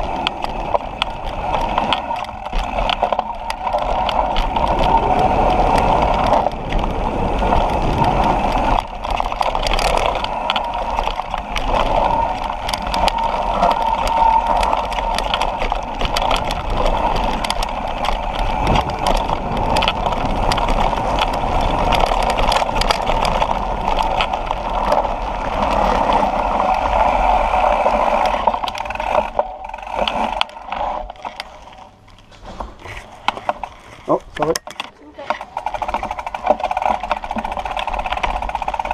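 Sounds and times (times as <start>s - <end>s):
wind rushing over microphone: 0.0s - 29.4s
bike rattling and clicking: 0.0s - 38.9s.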